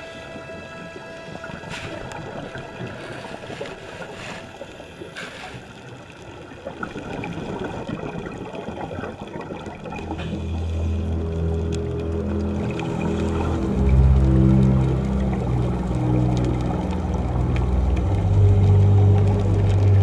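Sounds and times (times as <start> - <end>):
muffled underwater gurgling: 0.0 - 20.0
water washes: 0.0 - 20.0.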